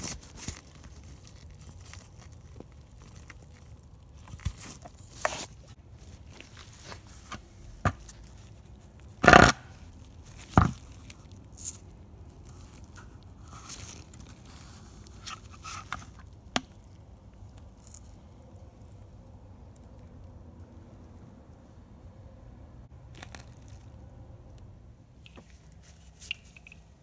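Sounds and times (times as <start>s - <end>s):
plastic scrapes and rustles: 0.0s - 16.4s.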